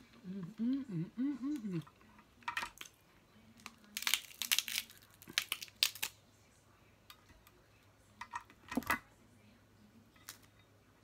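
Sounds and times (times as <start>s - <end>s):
crab shells cracking: 3.6s - 6.2s.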